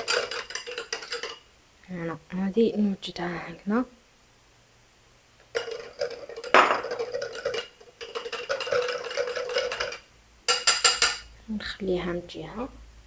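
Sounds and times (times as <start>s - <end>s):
whisk scraping glass bowl: 0.0s - 1.4s, 5.5s - 10.0s.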